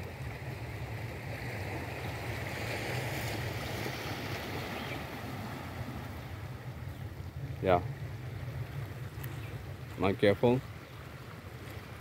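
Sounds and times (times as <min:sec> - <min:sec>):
waves washing over rocky shore: 0:00.0 - 0:06.8.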